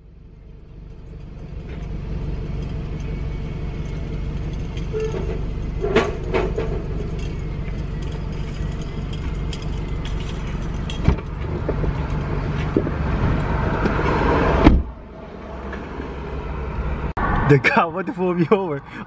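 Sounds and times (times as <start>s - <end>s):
car road and engine noise: 0.0s - 19.0s.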